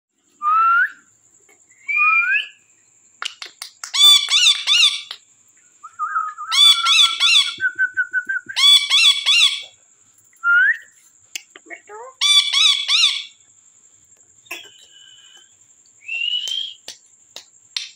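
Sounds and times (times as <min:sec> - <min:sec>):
warbling whistle: 0:01.8 - 0:02.6, 0:16.0 - 0:16.8
parakeets quick repeated calls: 0:03.9 - 0:05.2, 0:08.6 - 0:09.7
parakeets whistling: 0:03.9 - 0:05.2, 0:06.0 - 0:09.8, 0:12.2 - 0:13.4, 0:16.0 - 0:16.8.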